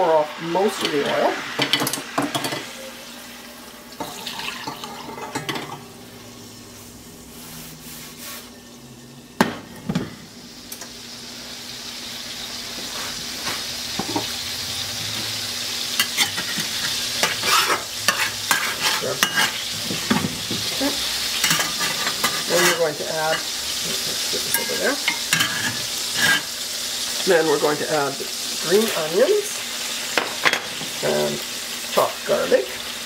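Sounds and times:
oil sizzling in wok: 0.0s - 33.0s
metal spatula scraping pan: 16.0s - 23.5s, 24.1s - 26.5s.

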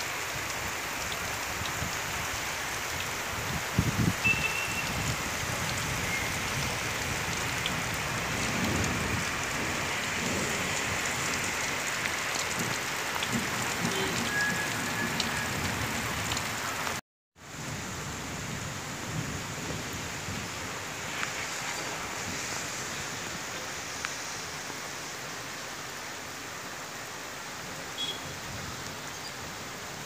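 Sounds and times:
heavy rain pouring: 0.0s - 30.0s
gusting wind rumbles: 3.3s - 11.8s.

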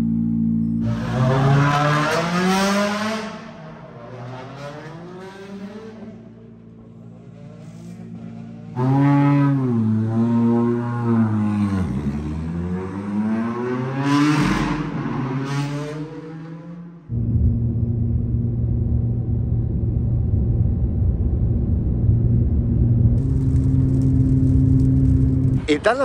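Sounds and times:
car engine revving: 0.0s - 20.9s, 21.6s - 25.9s
car cruising drone inside cabin: 17.1s - 25.6s.

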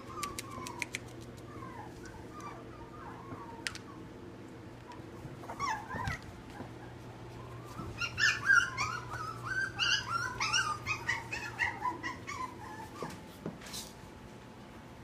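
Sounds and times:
puppy whimpering and yipping: 0.0s - 4.0s, 5.4s - 13.2s.

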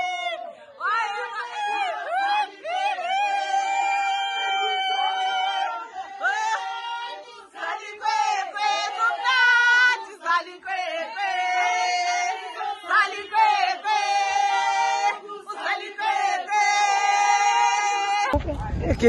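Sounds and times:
women singing together: 0.0s - 18.4s.

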